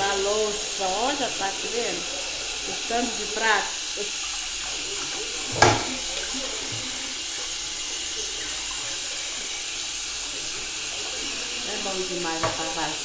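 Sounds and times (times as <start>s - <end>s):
tap running into sink: 2.0s - 9.9s, 10.6s - 13.0s.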